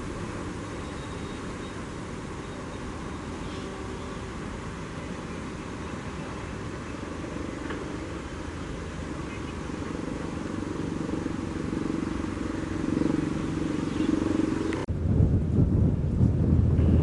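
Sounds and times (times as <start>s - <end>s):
wind on microphone: 9.8s - 17.0s.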